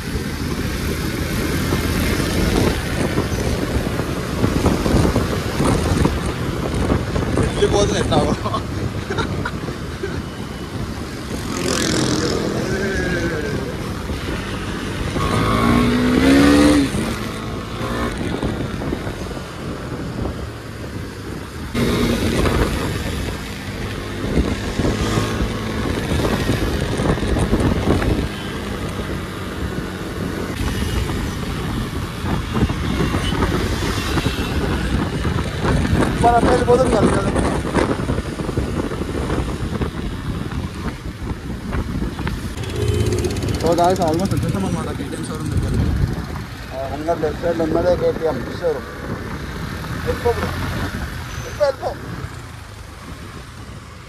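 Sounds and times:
other vehicles passing: 0:00.0 - 0:54.0
wind noise: 0:00.0 - 0:54.0
motorcycle engine running: 0:39.7 - 0:46.7.

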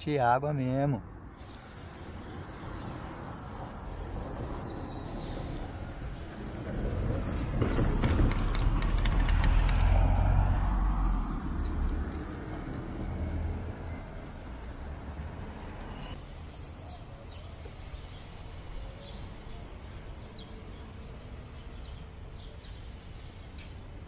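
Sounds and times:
spray paint can hissing: 0:01.3 - 0:24.0
heavy vehicle rumbling past: 0:06.4 - 0:16.2.

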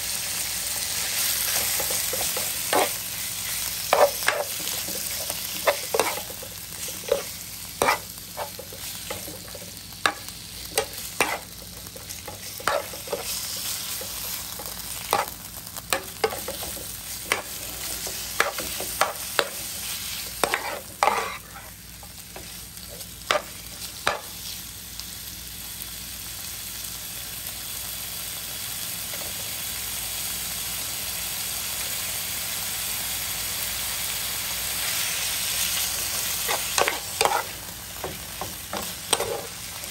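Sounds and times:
beef sizzling in a frying pan: 0:00.0 - 0:39.9
metal spatula scraping a pan: 0:01.5 - 0:03.0, 0:03.9 - 0:14.1, 0:16.0 - 0:21.7, 0:36.4 - 0:37.6, 0:38.4 - 0:39.6.

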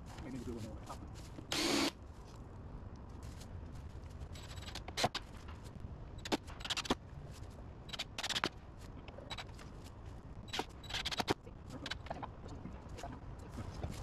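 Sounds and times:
cordless drill driving screw: 0:01.5 - 0:01.9.

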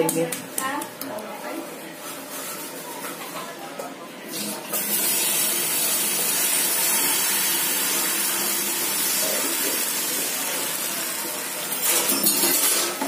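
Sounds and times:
batter sizzling on hot griddle: 0:04.8 - 0:12.1.

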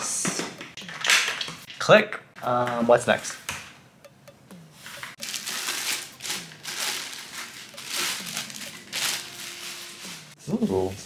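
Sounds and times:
plastic packaging crinkling: 0:05.1 - 0:10.3.

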